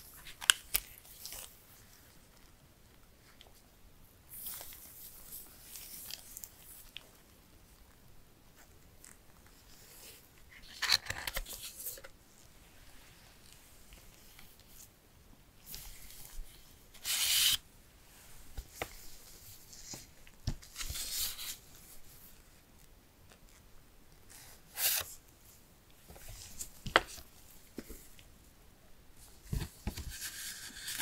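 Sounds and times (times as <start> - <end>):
paper cards rubbing together: 17.0 - 17.6.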